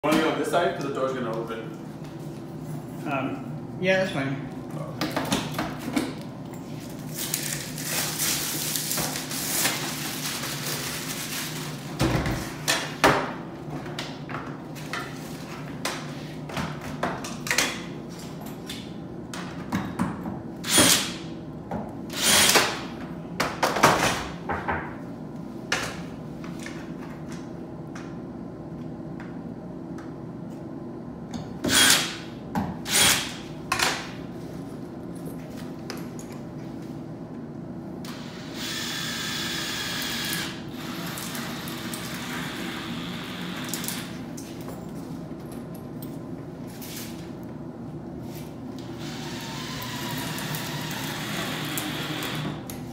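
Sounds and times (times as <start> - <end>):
cordless drill boring into wall: 20.6 - 21.1, 22.1 - 22.8, 31.7 - 32.2, 32.9 - 33.3, 38.1 - 44.0, 49.0 - 52.6.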